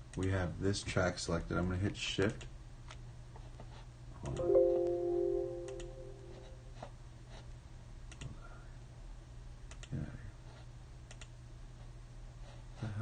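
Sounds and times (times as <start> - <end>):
mouse and keyboard clicks: 11.1 - 11.3.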